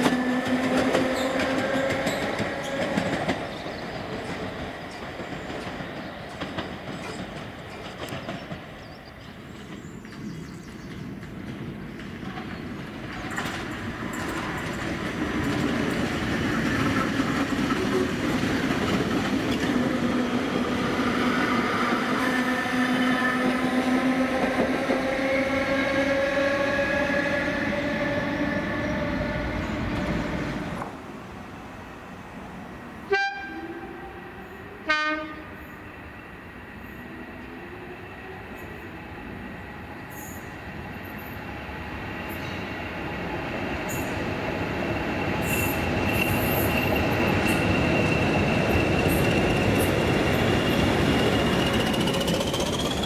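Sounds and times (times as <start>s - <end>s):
train whistle toots: 0.0s - 3.0s, 33.1s - 34.2s, 34.8s - 35.6s.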